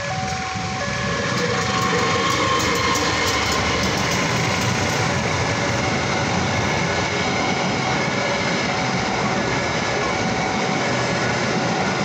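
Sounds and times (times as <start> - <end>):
train wheels rumbling on rails: 0.0 - 12.0.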